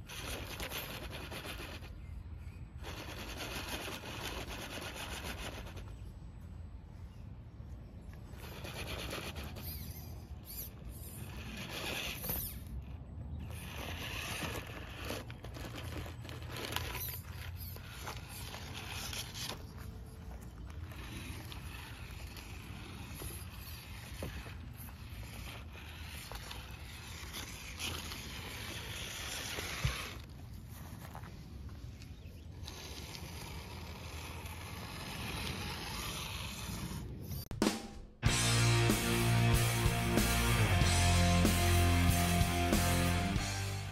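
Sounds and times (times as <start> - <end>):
tires scraping over wood: 0.0 - 6.2, 7.0 - 37.5
electric motor whirring: 8.2 - 30.5, 32.5 - 37.4
sharp knock: 37.6 - 38.3.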